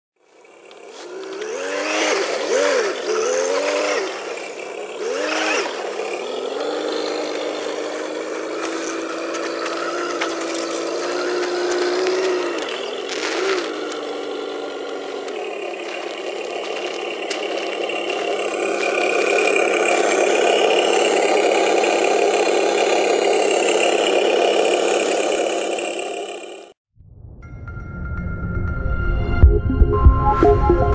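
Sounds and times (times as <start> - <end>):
simulated truck engine revving: 0.3 - 26.8.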